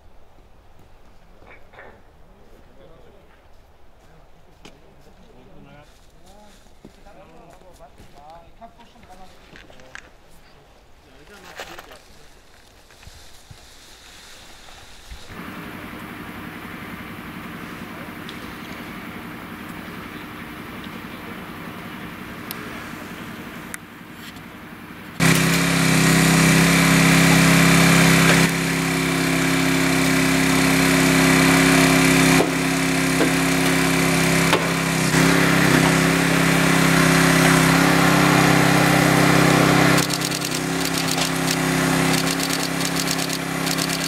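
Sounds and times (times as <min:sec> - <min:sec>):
hydraulic power unit drone: 0:15.1 - 0:44.0
sharp cracks of cutting metal: 0:25.2 - 0:44.0.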